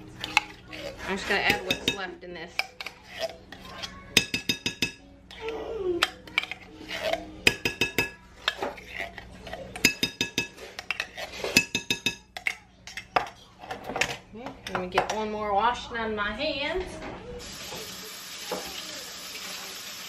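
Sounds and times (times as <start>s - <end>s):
metal spoon scraping tin can: 0.2s - 2.0s, 6.0s - 7.3s, 10.6s - 11.8s
spoon clinking on glass bowl: 6.0s - 8.6s, 9.8s - 13.0s.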